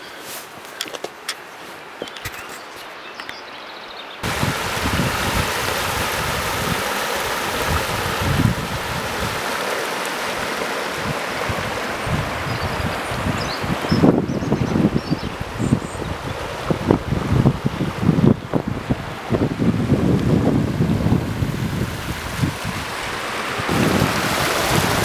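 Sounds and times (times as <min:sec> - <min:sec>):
footsteps through vegetation: 0:00.0 - 0:03.0
wind buffeting microphone: 0:04.2 - 0:09.7, 0:10.3 - 0:25.0
river rushing over rocks: 0:04.2 - 0:25.0.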